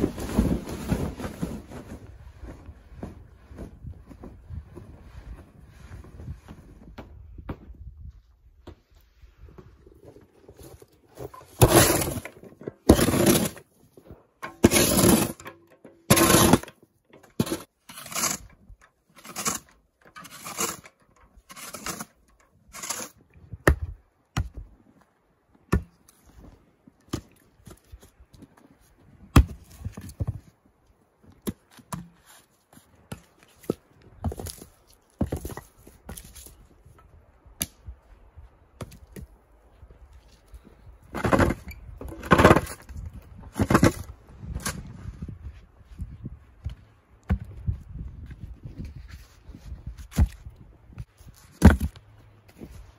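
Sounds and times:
axe chopping firewood: 25.7 - 26.1, 29.3 - 30.4.

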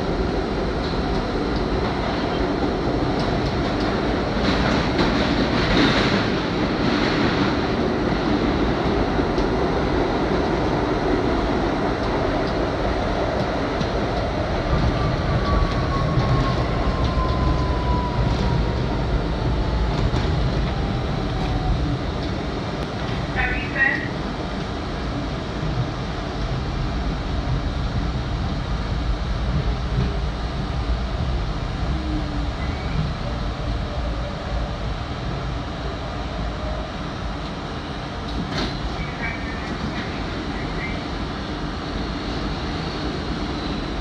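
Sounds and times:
train wheels rumbling on track: 0.0 - 44.0.

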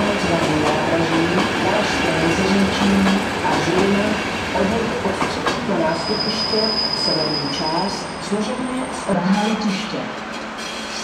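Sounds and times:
high wheel squeal: 5.9 - 8.2.

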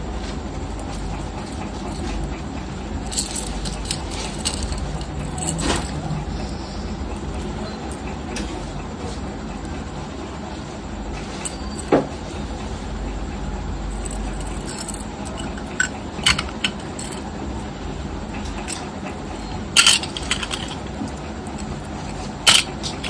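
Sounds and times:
low background rumble: 0.0 - 23.0
necklace chain clinking: 0.5 - 2.4, 3.0 - 8.2, 11.2 - 12.4, 13.9 - 23.0.

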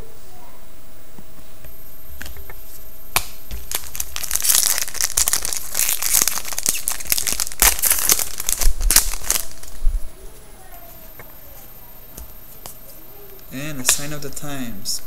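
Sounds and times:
foil wrapper crinkling and tearing: 3.2 - 9.9.

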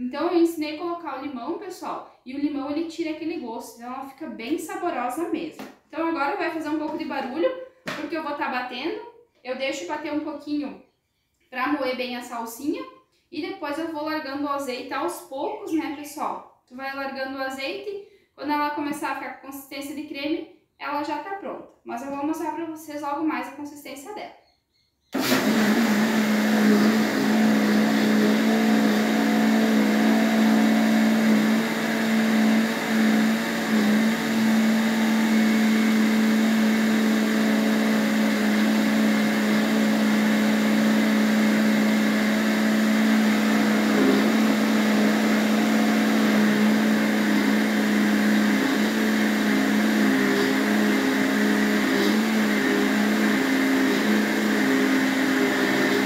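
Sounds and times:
blender running: 25.2 - 56.0.

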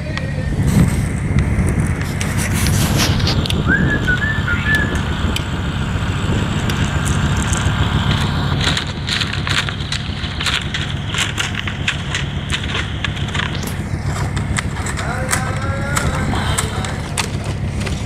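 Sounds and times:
diesel engine idling: 0.0 - 18.0
spade scraping in soil: 2.0 - 3.5.

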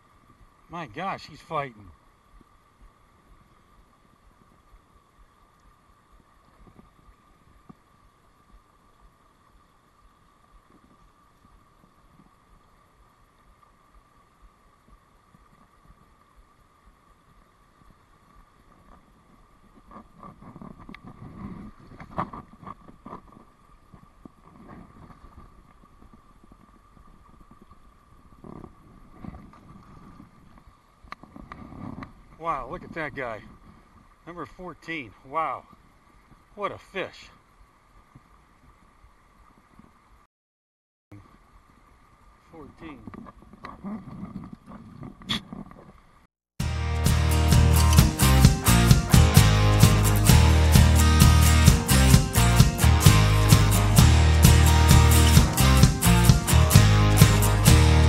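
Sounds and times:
stream water over a weir: 0.0 - 40.2, 41.1 - 43.8.

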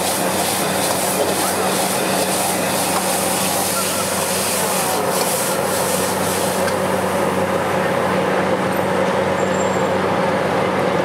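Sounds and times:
noodles sizzling in wok: 0.0 - 7.2
gas burner roaring: 0.0 - 11.0.

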